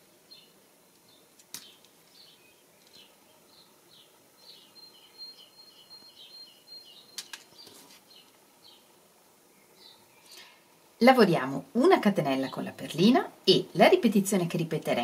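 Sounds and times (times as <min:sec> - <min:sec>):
birds chirping: 0:00.0 - 0:13.8
sharp clicks: 0:07.2 - 0:07.5.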